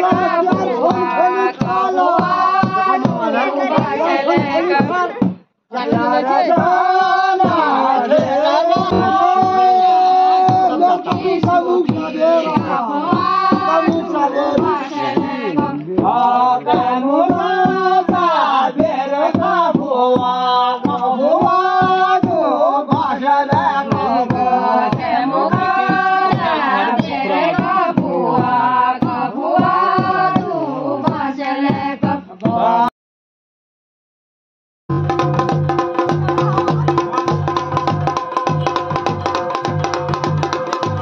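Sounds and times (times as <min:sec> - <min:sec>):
steady drumbeat: 0:00.0 - 0:32.8, 0:34.9 - 0:41.0
voices chanting a melody: 0:00.0 - 0:32.9.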